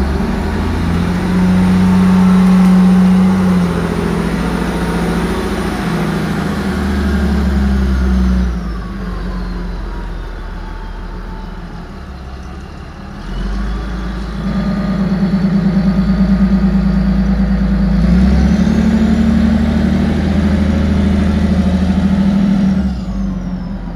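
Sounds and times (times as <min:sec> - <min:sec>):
wheel loader diesel engine: 0:00.0 - 0:23.9.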